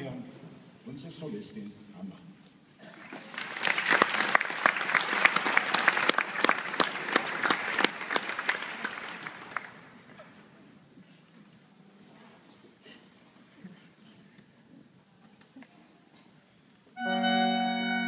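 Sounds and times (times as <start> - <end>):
audience clapping: 2.8 - 10.4.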